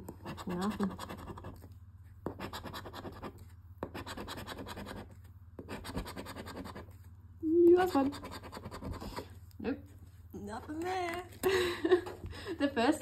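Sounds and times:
scratch card scraping: 0:00.1 - 0:07.1, 0:07.9 - 0:09.4.

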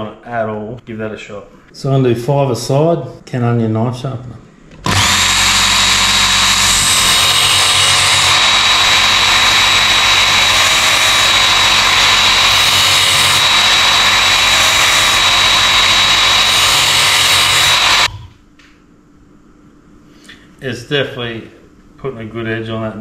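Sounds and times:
belt knife sharpener whining: 0:04.9 - 0:18.1.

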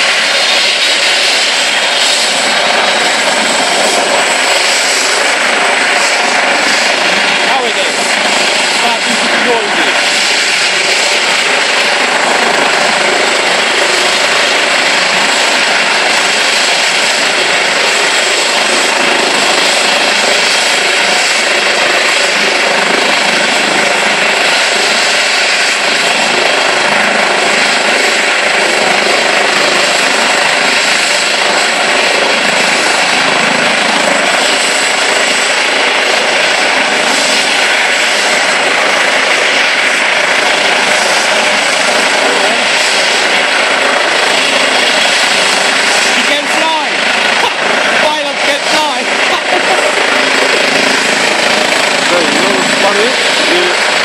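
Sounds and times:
helicopter turbine engines and rotors: 0:00.0 - 0:54.0.

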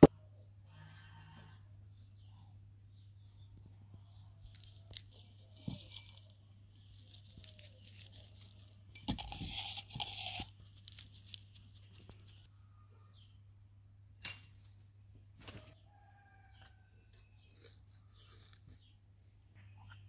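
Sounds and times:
dried herbs crumbled between fingers: 0:04.4 - 0:12.5.

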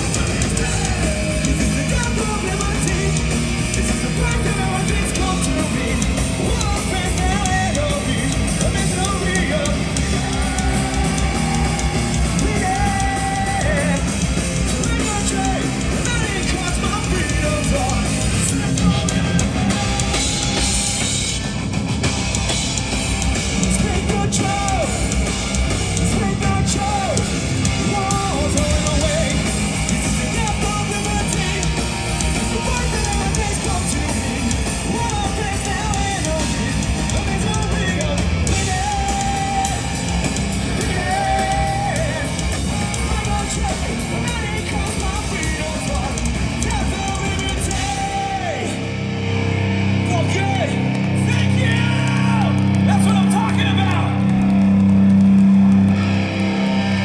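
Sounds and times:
person singing: 0:00.0 - 0:20.8, 0:26.0 - 0:48.8
punk rock band playing: 0:00.0 - 0:57.0.

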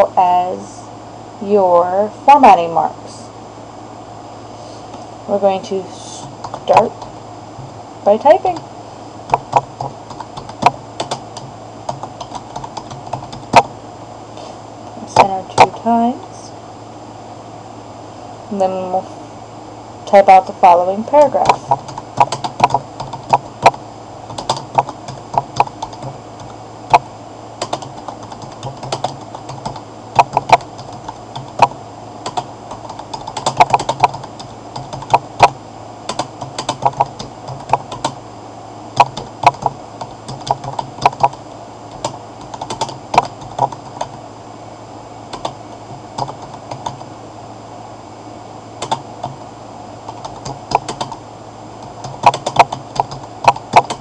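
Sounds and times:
computer keyboard keys clicking: 0:24.3 - 0:26.1, 0:27.6 - 0:31.7, 0:32.3 - 0:35.2, 0:36.1 - 0:38.2, 0:42.0 - 0:44.1, 0:48.8 - 0:49.0, 0:50.1 - 0:51.2, 0:52.0 - 0:54.0.

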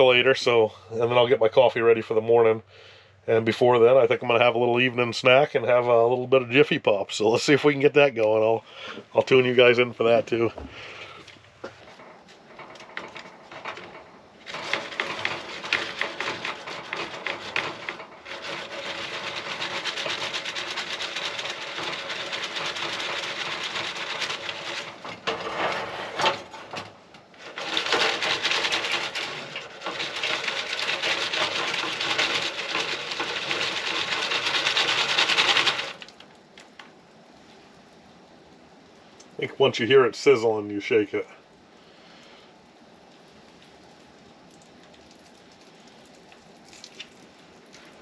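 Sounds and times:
foil pan rattling on stove grate: 0:11.6 - 0:36.2.

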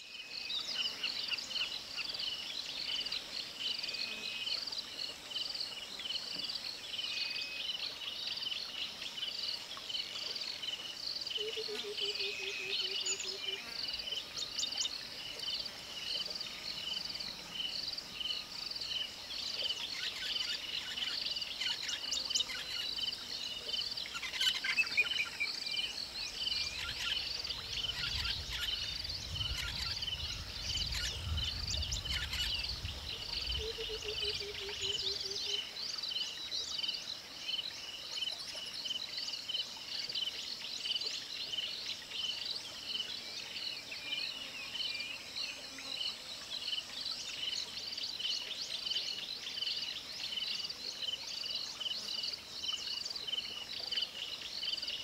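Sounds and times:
bird calls: 0:24.0 - 0:35.6.

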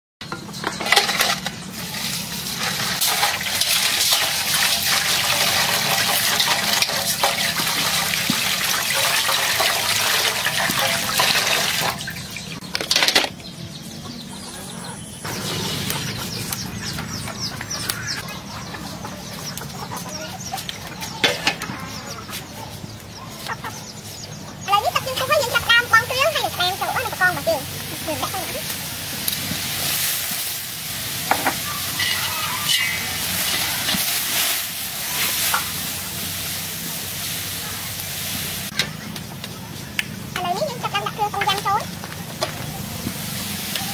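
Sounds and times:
chickens clucking: 0:00.3 - 0:29.9, 0:30.6 - 0:43.9
water splashing in metal basin: 0:01.7 - 0:12.6.

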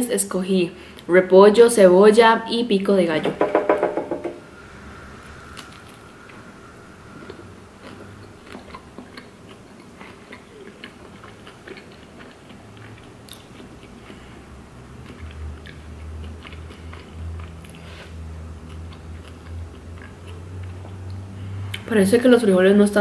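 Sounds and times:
low steady hum: 0:00.0 - 0:23.0
wet chewing mouth sounds: 0:07.1 - 0:21.9.

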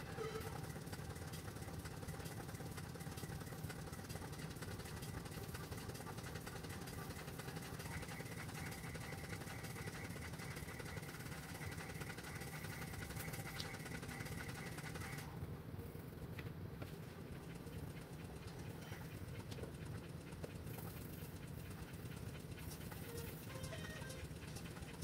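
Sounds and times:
faint thin high tone: 0:00.0 - 0:00.6
motor humming: 0:00.0 - 0:15.6, 0:17.0 - 0:25.0.

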